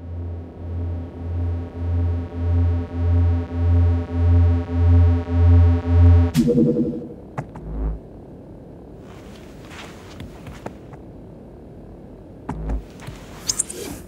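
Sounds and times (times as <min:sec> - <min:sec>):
low throbbing bass note: 0:00.0 - 0:08.0, 0:12.5 - 0:12.8
synthesizer chord: 0:01.2 - 0:07.3.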